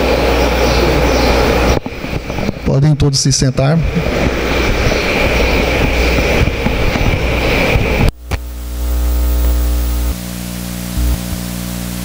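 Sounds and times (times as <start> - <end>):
faint high whine: 0.0 - 12.0
steady hiss: 0.0 - 12.0.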